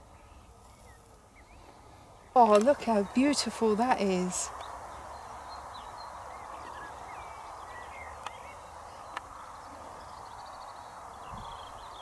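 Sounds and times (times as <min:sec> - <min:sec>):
background hiss: 0:00.0 - 0:12.0
birds singing: 0:00.0 - 0:12.0.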